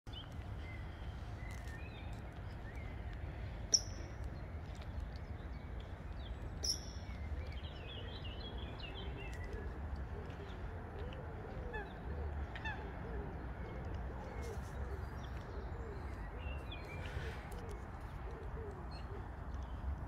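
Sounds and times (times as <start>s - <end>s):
small birds chirping: 0.1s - 11.2s.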